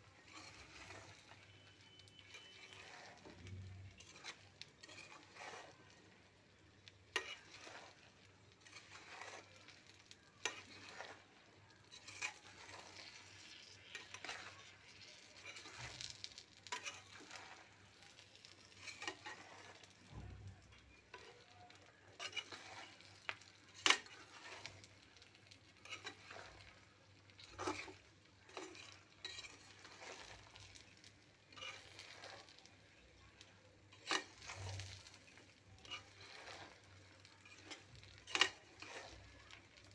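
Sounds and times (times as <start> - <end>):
chilies and garlic sizzling in oil: 0.0 - 39.9
stirring scrapes and knocks: 0.0 - 39.9.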